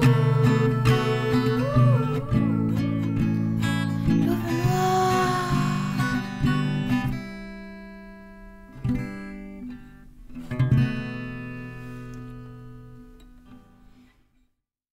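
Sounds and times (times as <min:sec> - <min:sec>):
acoustic guitar strumming chords: 0:00.0 - 0:14.0.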